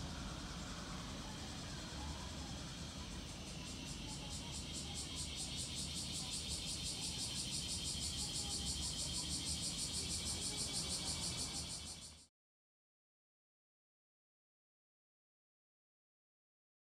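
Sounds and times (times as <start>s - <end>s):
insects trilling: 0.0s - 12.3s.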